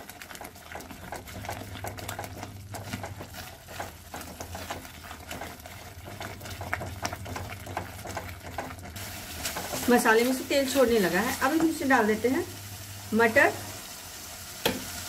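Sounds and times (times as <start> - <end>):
paste frying: 0.0 - 15.0
spatula scraping paste in pan: 0.3 - 11.8.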